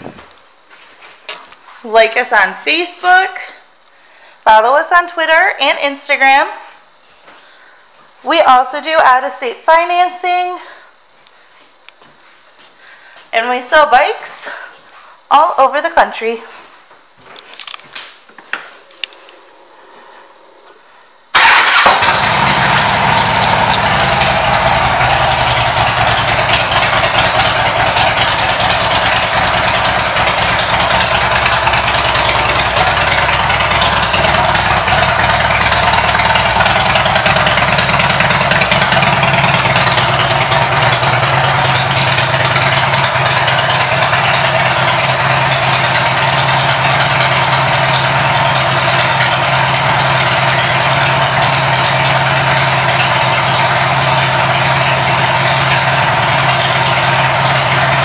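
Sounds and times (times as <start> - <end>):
motorcycle engine idling loudly: 21.4 - 58.0.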